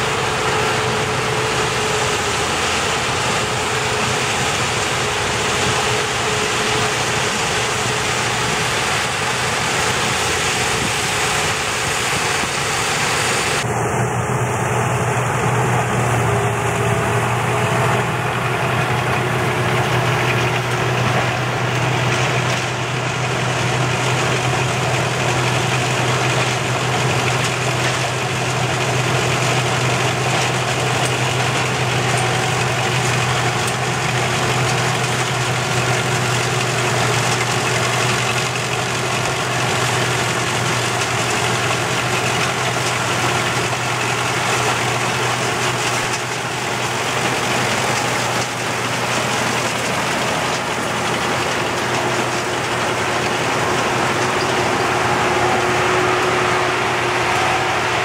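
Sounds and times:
combine harvester engine drone: 0:00.0 - 0:58.0
mechanical rush of threshing gear: 0:16.7 - 0:58.0.

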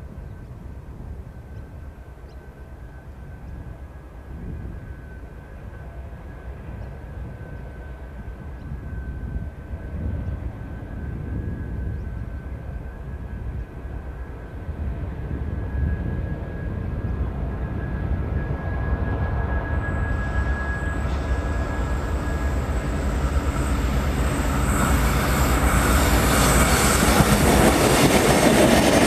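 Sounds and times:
steady high whine: 0:01.7 - 0:29.0
locomotive engines rumbling: 0:16.7 - 0:29.0.

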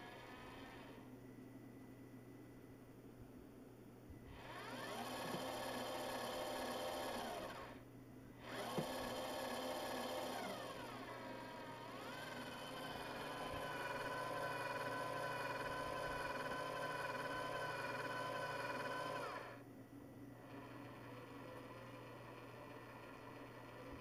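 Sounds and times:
small electric motor whining: 0:00.0 - 0:01.1, 0:04.3 - 0:07.8, 0:08.4 - 0:19.6.

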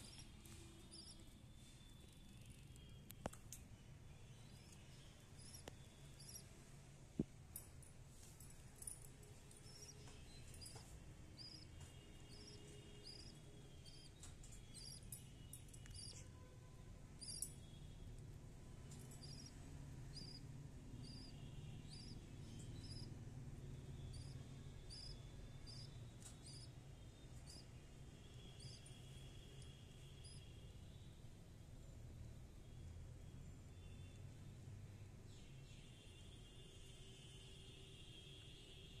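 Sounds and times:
budgerigar chicks peeping: 0:11.4 - 0:11.6, 0:20.2 - 0:20.4, 0:21.0 - 0:21.3, 0:22.8 - 0:23.1, 0:24.9 - 0:26.7.

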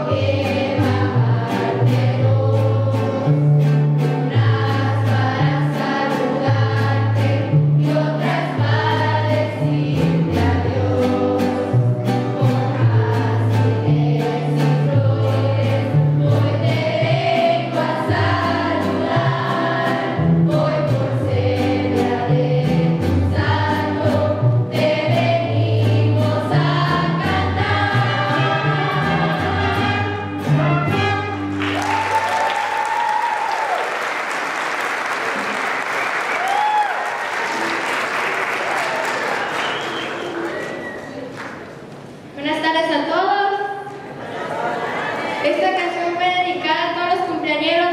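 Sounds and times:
mariachi band playing and singing: 0:00.0 - 0:33.8, 0:38.4 - 0:47.9
audience applause: 0:31.5 - 0:41.7.

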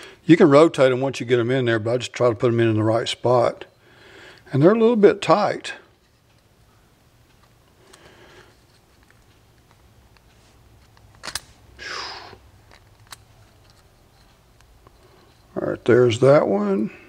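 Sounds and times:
sharp click: 0:11.0 - 0:11.5
piston ring clicks and scrapes: 0:12.7 - 0:15.5.

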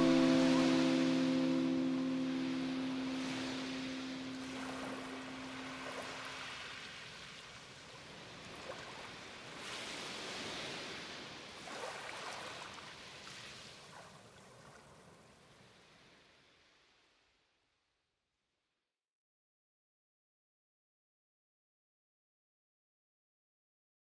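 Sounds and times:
held music note: 0:00.0 - 0:06.2
sea waves washing ashore: 0:00.0 - 0:16.9.

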